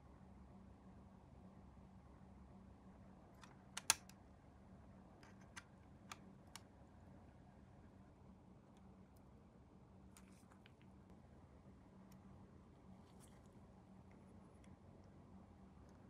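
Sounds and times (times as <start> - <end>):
faint steady hum: 0.0 - 16.0
plastic parts clicking: 3.4 - 4.1.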